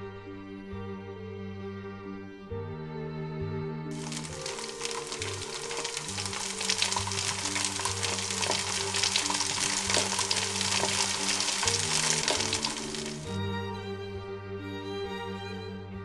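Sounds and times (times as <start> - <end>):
background music with low notes: 0.0 - 16.0
food sizzling in a hot pot: 3.9 - 13.4.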